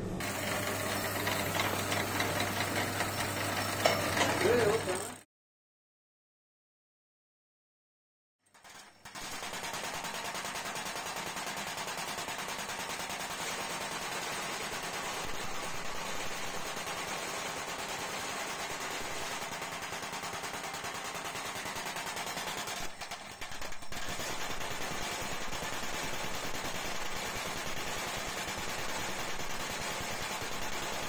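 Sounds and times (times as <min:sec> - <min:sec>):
power press punching metal: 0:00.2 - 0:04.8.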